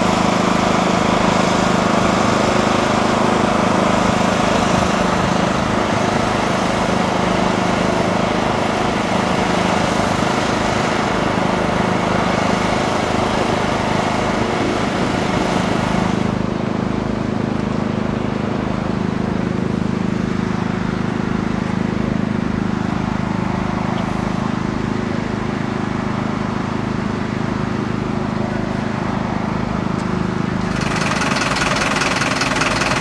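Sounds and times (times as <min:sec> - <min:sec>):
engine running: 0:00.0 - 0:33.0
hiss: 0:30.7 - 0:33.0.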